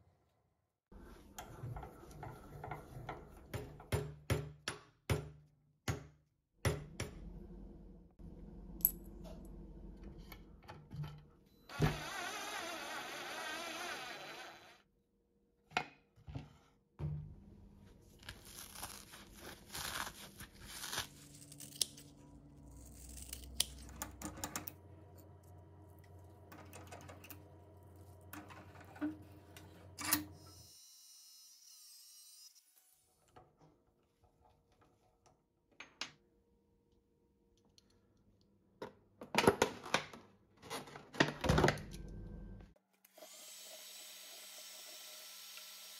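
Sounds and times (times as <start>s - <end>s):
cordless drill whining: 11.7s - 14.8s.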